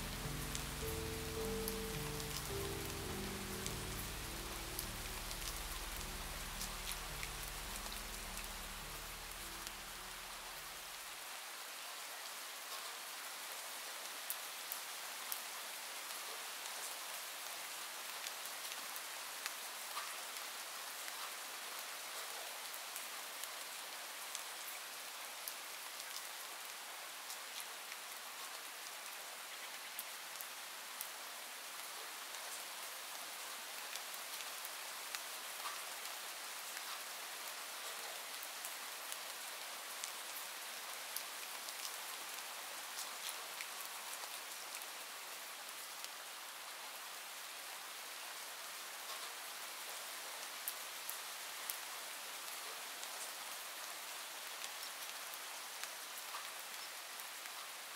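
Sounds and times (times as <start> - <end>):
low sustained tones: 0.0 - 10.6
raindrops ticking: 0.0 - 10.6
steady rain hiss: 0.0 - 57.9.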